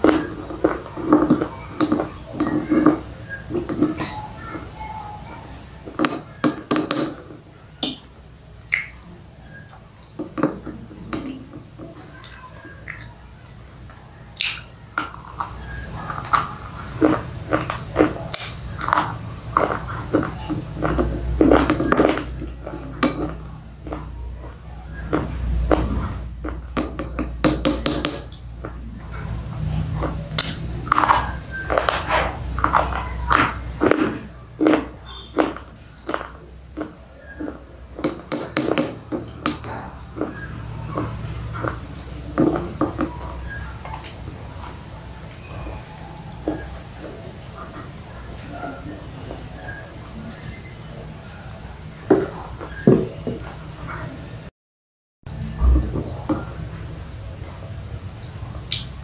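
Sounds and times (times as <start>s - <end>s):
slate pencils clinking: 0.0s - 4.2s, 5.9s - 7.4s, 10.1s - 11.6s, 20.8s - 23.5s, 26.8s - 28.4s, 38.0s - 39.9s, 41.6s - 43.3s
chewing crunches: 14.4s - 26.8s, 29.9s - 38.1s.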